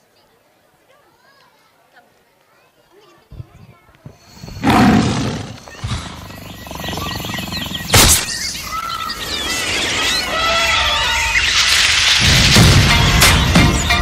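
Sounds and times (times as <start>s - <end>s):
recorded birds chirping: 2.8s - 12.2s
sharp crash: 11.2s - 14.0s.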